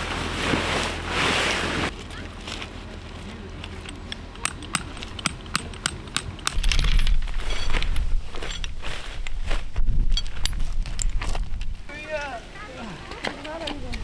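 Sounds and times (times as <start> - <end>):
sharp clicks and taps: 3.6 - 6.6
wind buffeting microphone: 6.3 - 11.9.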